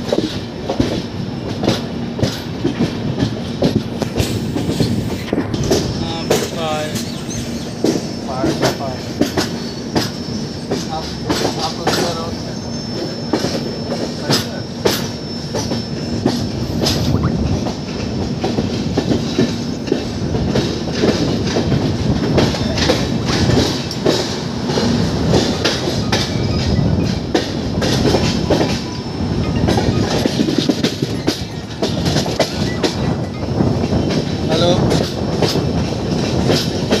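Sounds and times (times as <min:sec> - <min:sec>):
train rumble: 0:00.0 - 0:37.0
wheels clattering over track joints: 0:00.0 - 0:37.0
high wheel squeal: 0:06.0 - 0:18.2, 0:25.4 - 0:34.6.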